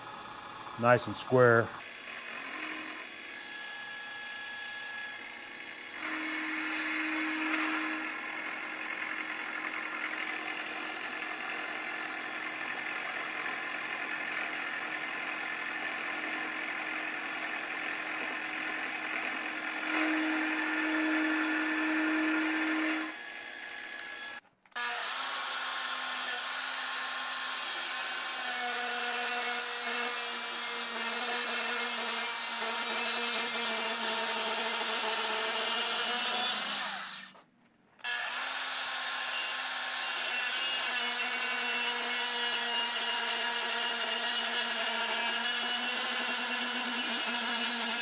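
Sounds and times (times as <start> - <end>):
milling machine cutting steel: 18.8 - 24.4.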